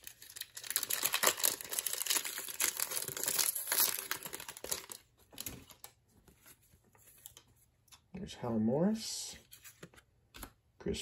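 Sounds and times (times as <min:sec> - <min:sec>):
wrapper tearing and crinkling: 0:00.0 - 0:05.0.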